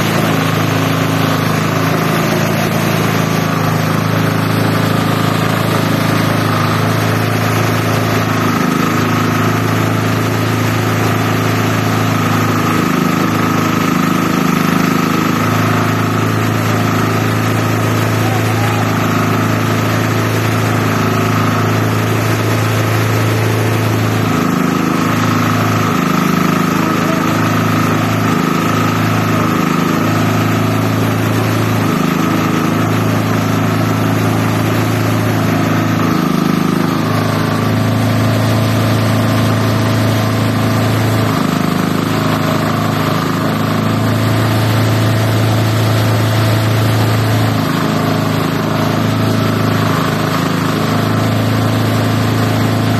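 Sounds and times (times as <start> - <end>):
shredder machine humming and whining: 0.0 - 52.9.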